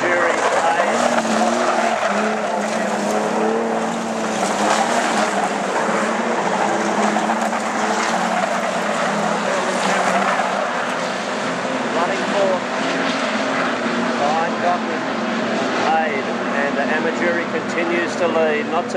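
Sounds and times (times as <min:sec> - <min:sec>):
race car engines: 0:00.0 - 0:18.9.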